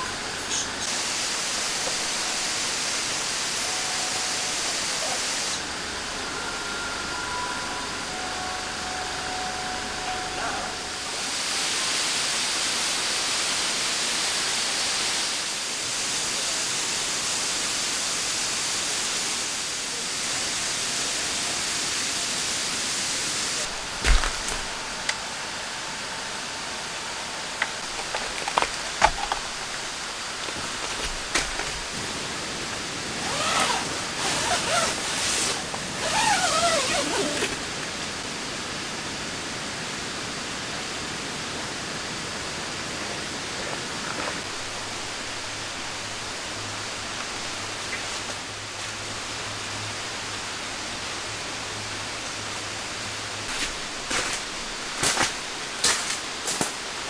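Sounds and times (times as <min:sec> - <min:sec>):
rain on tent fabric: 0:00.0 - 0:06.4, 0:08.3 - 0:26.4, 0:27.0 - 0:57.0
wavering gliding tones: 0:02.0 - 0:11.5.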